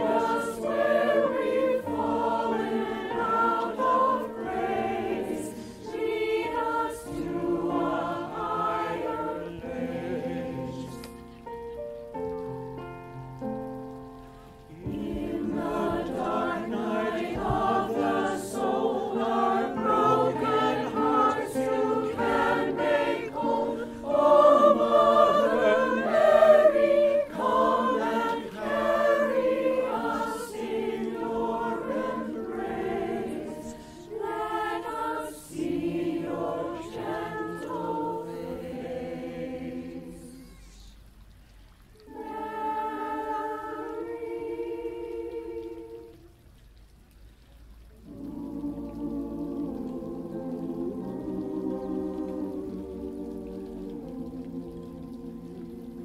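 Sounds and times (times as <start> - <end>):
choir singing: 0.0 - 11.2, 14.7 - 40.9, 42.0 - 46.1, 48.0 - 56.0
keyboard accompaniment: 0.0 - 38.8.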